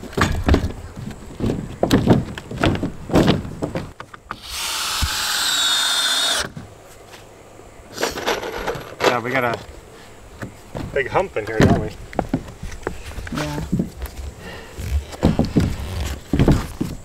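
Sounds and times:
knocks and handling thumps: 0.0s - 4.4s, 8.0s - 9.8s, 10.4s - 17.0s
cordless drill whining: 4.4s - 6.5s.

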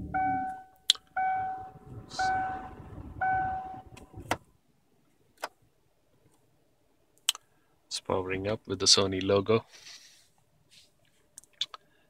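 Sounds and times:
dashboard warning chime: 0.0s - 4.0s.

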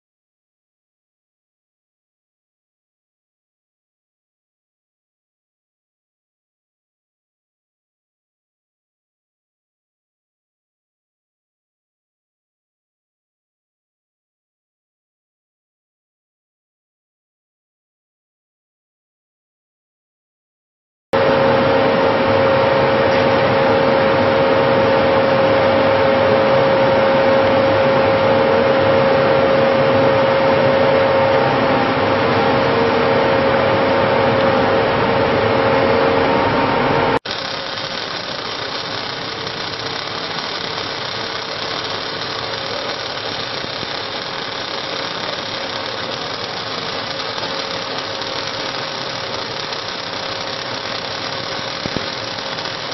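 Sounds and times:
steady machine running noise: 21.2s - 52.9s
welding machine hum and whine: 21.2s - 52.9s.

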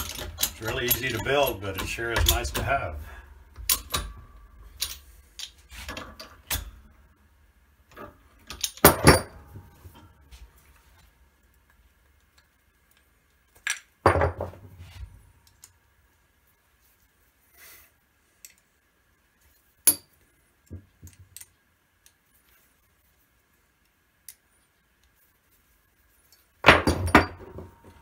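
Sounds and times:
metal clicks and clinks: 0.0s - 2.8s.

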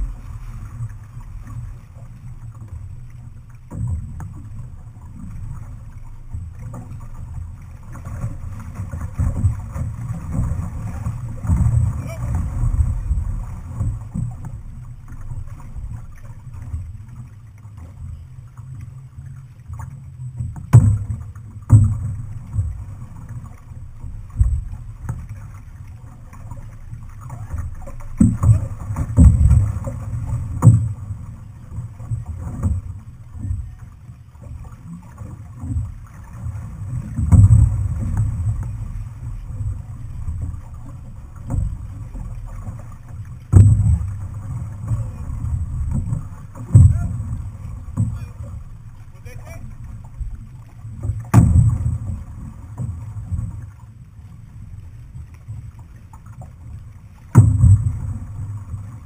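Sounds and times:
water splashing from paddle: 0.0s - 59.0s
sharp knocks: 51.3s - 51.9s.

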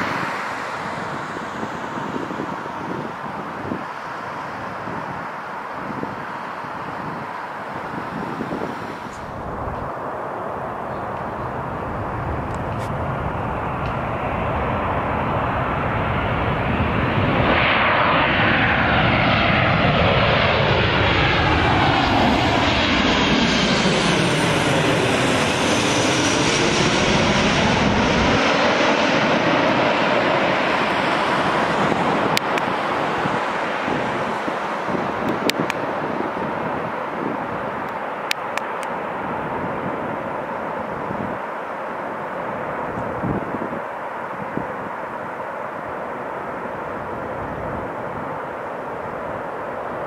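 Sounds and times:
jet plane passing overhead: 0.0s - 50.0s.

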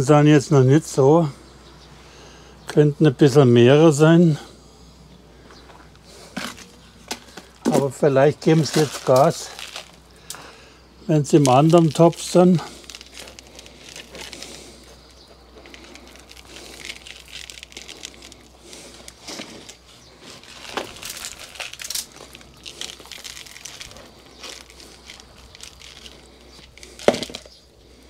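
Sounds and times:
soil rustling and trickling: 5.4s - 28.0s
plastic pots handled: 5.5s - 10.5s, 11.1s - 28.0s.

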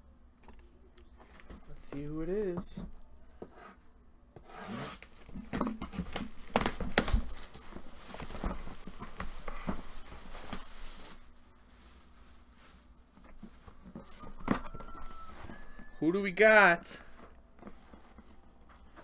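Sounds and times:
plastic wrap tearing and crinkling: 4.8s - 15.7s.

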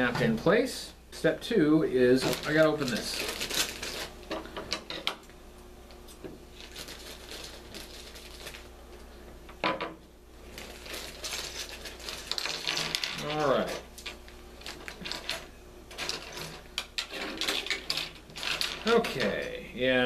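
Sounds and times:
plastic bag crinkling: 2.2s - 4.2s, 6.5s - 8.8s, 10.4s - 19.5s.

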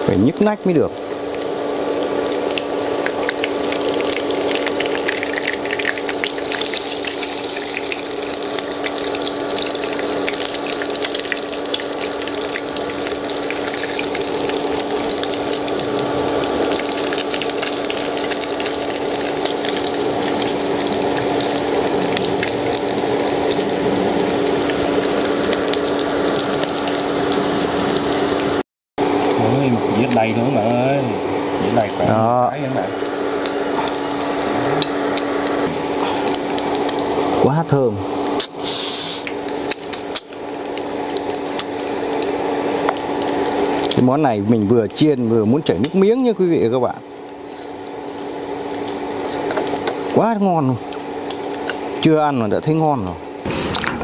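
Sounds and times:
patties sizzling in hot oil: 0.0s - 53.8s
low hum: 0.9s - 28.6s.

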